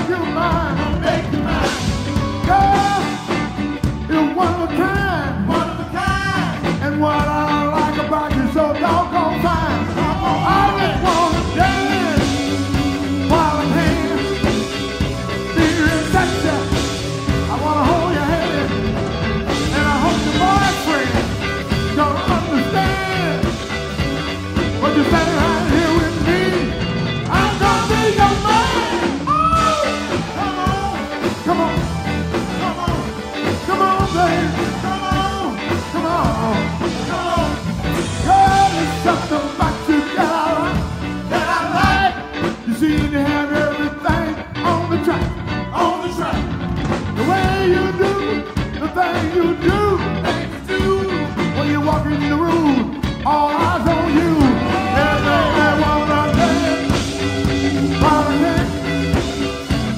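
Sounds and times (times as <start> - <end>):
bending lead guitar line: 0.0 - 59.9
live blues band playing: 0.0 - 59.9.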